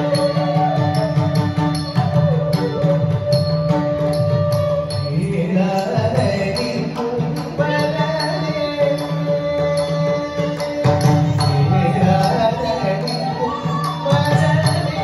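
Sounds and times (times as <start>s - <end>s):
person singing a melody: 4.8s - 15.0s.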